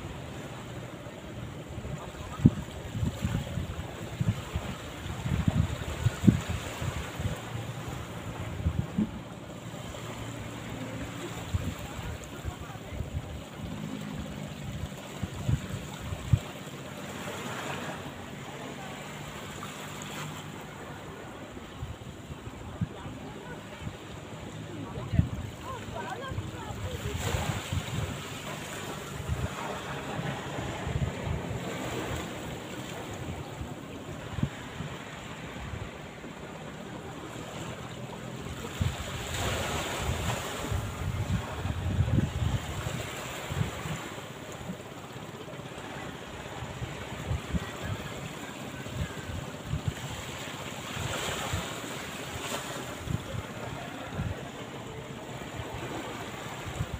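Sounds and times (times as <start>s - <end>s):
waves washing on beach: 0.0s - 56.9s
wind: 0.0s - 56.9s
wind buffeting microphone: 1.9s - 9.4s, 24.8s - 36.0s, 38.6s - 44.8s.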